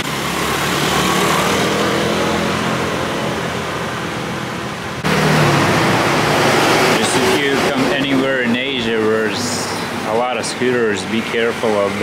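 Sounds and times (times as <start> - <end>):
motor scooters riding past: 0.0 - 4.3
street traffic noise: 0.0 - 12.0.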